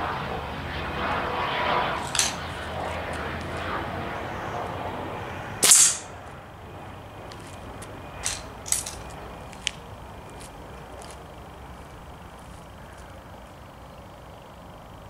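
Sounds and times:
air rifle shot cracking: 0:05.6 - 0:06.2.

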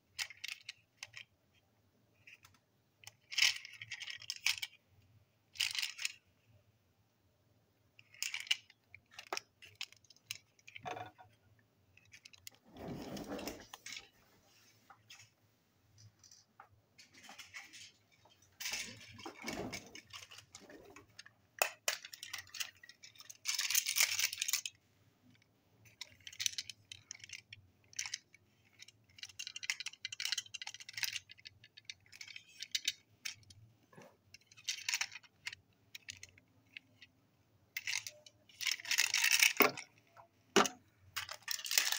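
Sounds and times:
toy train clicks and rattles: 0:00.1 - 0:01.3, 0:02.2 - 0:04.8, 0:05.5 - 0:06.3, 0:08.0 - 0:10.9, 0:11.9 - 0:12.6, 0:17.3 - 0:41.9.

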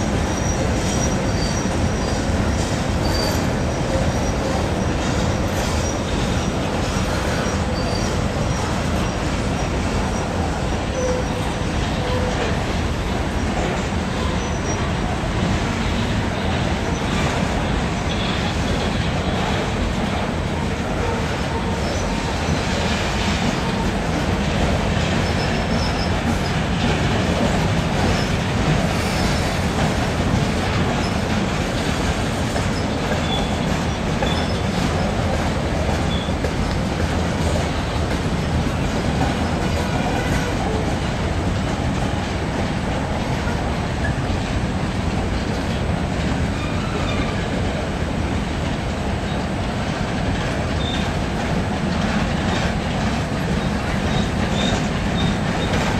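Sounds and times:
train wheels clattering on rails: 0:00.0 - 0:55.9
faint wheel squeals: 0:03.0 - 0:04.5, 0:07.0 - 0:10.3, 0:32.8 - 0:34.8.

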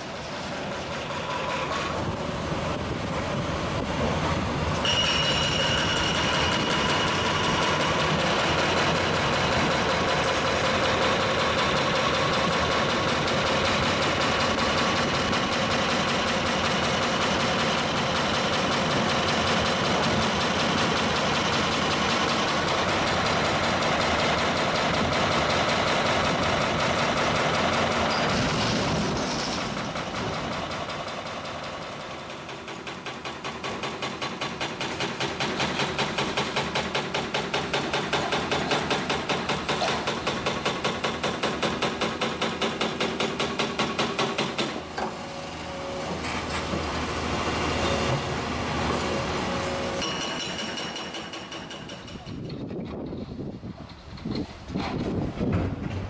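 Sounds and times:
diesel machinery running: 0:00.0 - 0:32.8, 0:44.5 - 0:50.1
hydraulic breaker hammering concrete: 0:04.8 - 0:53.1
rubble loading into truck: 0:28.0 - 0:30.4.

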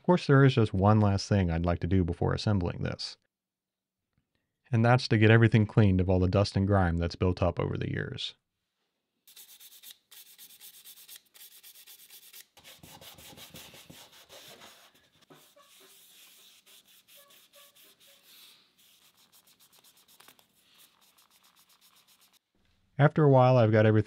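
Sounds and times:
brush scrubbing wood: 0:09.4 - 0:22.4.

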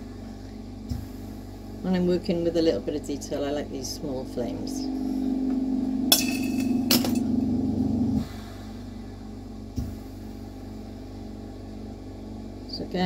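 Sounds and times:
steady low hum: 0:00.0 - 0:13.0
glass rods clinking: 0:06.1 - 0:07.3.

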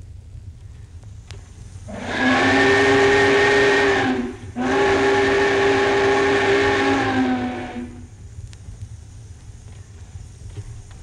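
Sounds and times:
record hiss: 0:00.0 - 0:11.0
steam locomotive chime whistle: 0:01.9 - 0:08.1.

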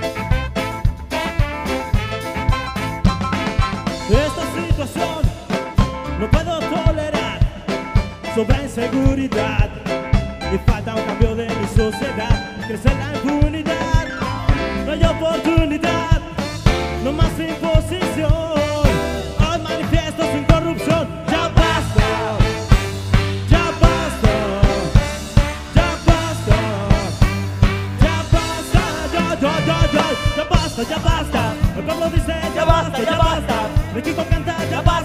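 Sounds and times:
saxophone: 0:00.0 - 0:04.4, 0:14.0 - 0:17.1, 0:21.3 - 0:32.1
trumpet: 0:00.0 - 0:07.4, 0:10.4 - 0:35.0
drum kit beat: 0:00.0 - 0:35.0
live reggae ska band: 0:00.0 - 0:35.0.

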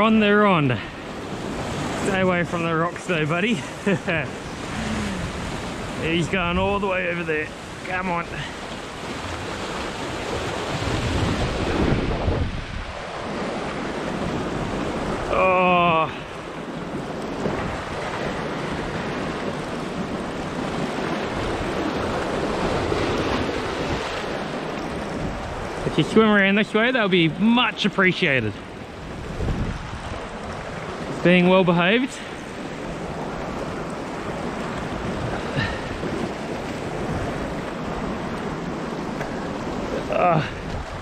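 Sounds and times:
sea surf washing over rocks: 0:00.0 - 0:41.0
wind buffeting microphone: 0:04.2 - 0:15.4, 0:16.1 - 0:26.0, 0:28.8 - 0:31.2, 0:32.4 - 0:41.0
wind on the microphone: 0:08.4 - 0:15.4, 0:29.0 - 0:30.9.

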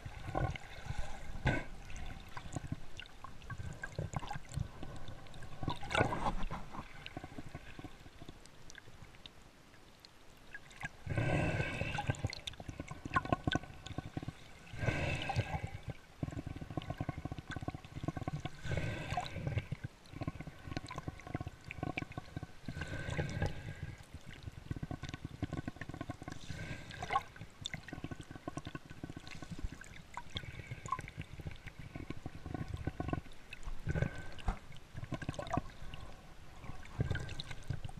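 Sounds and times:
water gurgling and sloshing: 0:00.0 - 0:37.9
bubbly clicks: 0:27.0 - 0:35.9.

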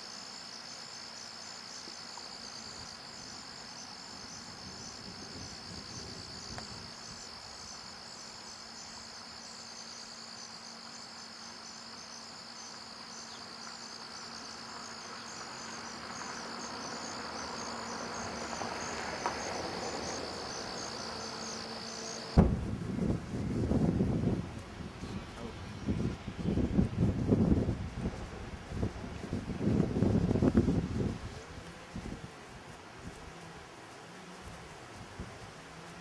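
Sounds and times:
insects chirping: 0:00.0 - 0:36.0.

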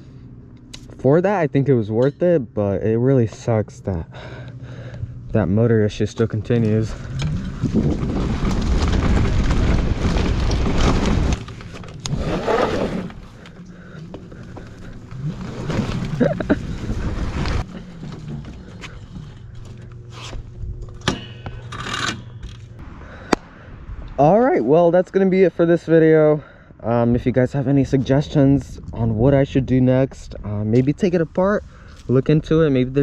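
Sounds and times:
e-bike tyre and motor noise: 0:00.0 - 0:33.0
wind rushing on microphone: 0:28.0 - 0:30.7.

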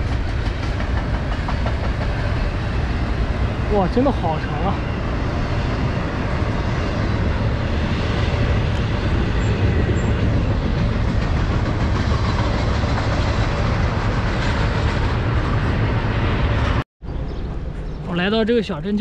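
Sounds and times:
freight train passing: 0:00.0 - 0:19.0.

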